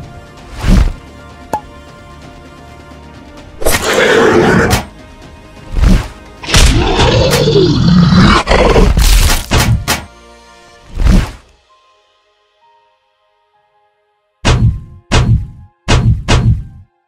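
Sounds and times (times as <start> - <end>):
background music: 0.0 - 17.0
long monster roar: 6.5 - 9.0
monster growl: 6.5 - 9.1.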